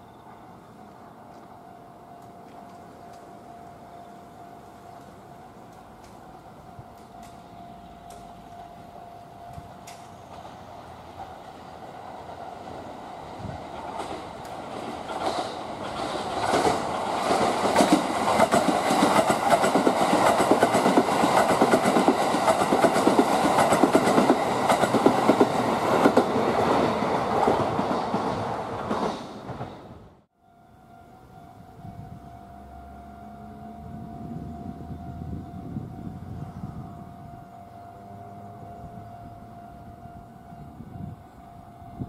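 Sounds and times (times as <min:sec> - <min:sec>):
train wheels clattering over rail joints: 0:13.6 - 0:29.9.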